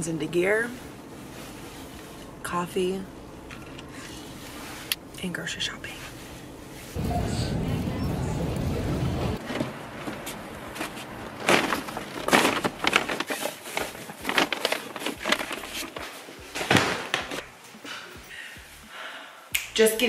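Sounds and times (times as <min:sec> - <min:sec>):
shopping rustling and clicking: 0:09.4 - 0:18.1
paper bags thumping on counter: 0:10.8 - 0:17.5.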